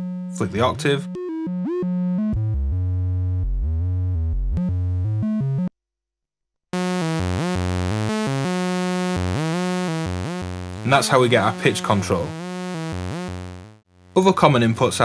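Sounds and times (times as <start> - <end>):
synthesizer playing short notes: 6.8 - 13.8.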